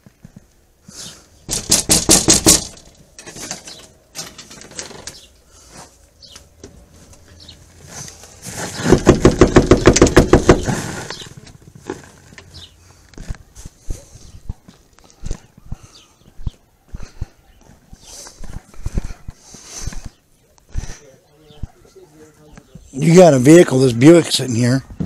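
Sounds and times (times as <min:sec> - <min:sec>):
rapid knocking on front door: 0:01.5 - 0:02.7, 0:08.8 - 0:10.7.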